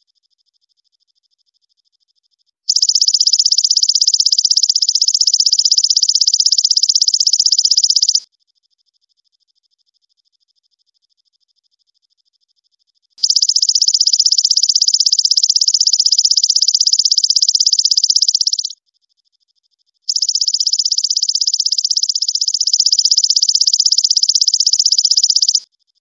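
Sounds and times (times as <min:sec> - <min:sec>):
katydid trilling: 0:02.7 - 0:08.2, 0:13.2 - 0:18.8, 0:20.1 - 0:25.6.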